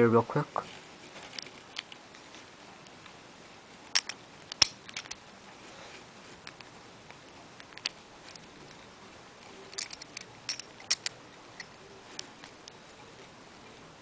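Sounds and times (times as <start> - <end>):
small plastic parts clicking: 3.9 - 5.2, 7.6 - 8.8, 9.7 - 12.6.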